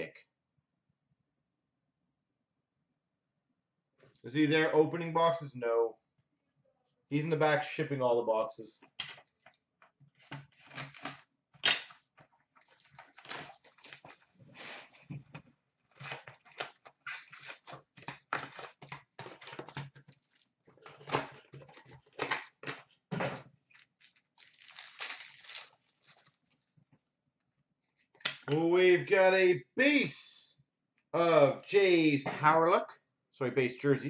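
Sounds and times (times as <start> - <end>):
card packs rustling and tearing: 10.2 - 12.0, 12.6 - 15.0, 15.9 - 23.0, 23.6 - 26.4.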